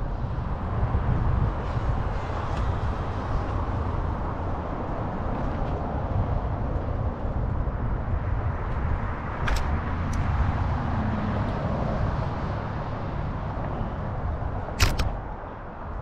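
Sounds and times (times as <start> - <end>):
wind and road noise: 0.0 - 16.0
car traffic passing: 8.1 - 16.0
sharp clicks: 9.4 - 10.2, 14.8 - 15.2.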